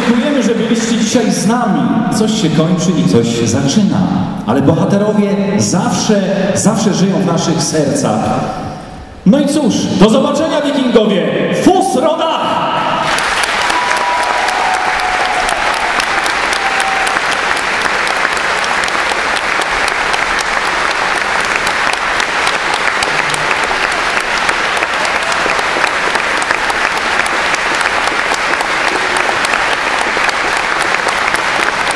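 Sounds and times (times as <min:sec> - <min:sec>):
audience applauding: 0:00.0 - 0:01.2, 0:13.0 - 0:31.9.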